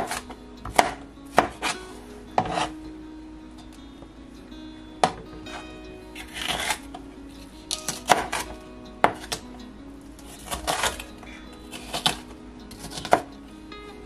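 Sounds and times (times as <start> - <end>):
utensil scraping strokes: 1.4 - 2.8, 6.2 - 6.9.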